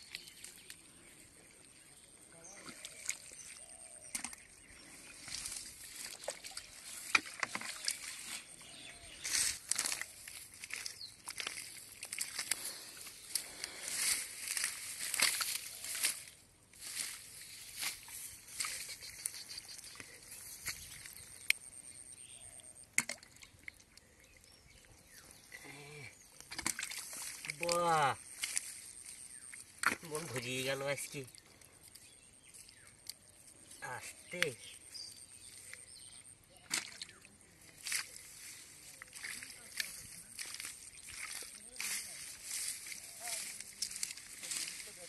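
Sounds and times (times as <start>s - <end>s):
hands squelching in wet mud: 0.0s - 21.9s, 22.8s - 45.0s
small splashes: 2.4s - 21.6s, 22.9s - 33.4s, 35.4s - 45.0s
wet clicks and splats: 4.0s - 4.4s, 9.7s - 12.7s, 18.6s - 21.6s, 22.9s - 24.1s, 26.4s - 28.7s, 29.5s - 30.4s, 31.3s - 33.3s, 36.6s - 38.2s.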